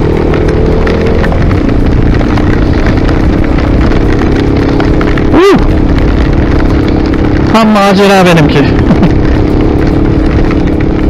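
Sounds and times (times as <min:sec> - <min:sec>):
motorcycle engine running: 0:00.0 - 0:11.0
rain ticking on helmet: 0:00.0 - 0:11.0
wind rumble on microphone: 0:00.0 - 0:11.0.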